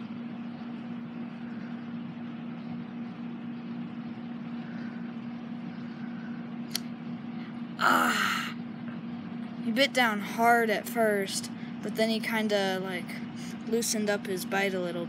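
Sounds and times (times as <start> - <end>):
low mechanical hum: 0.0 - 15.0
person crying out in pain: 7.8 - 8.6.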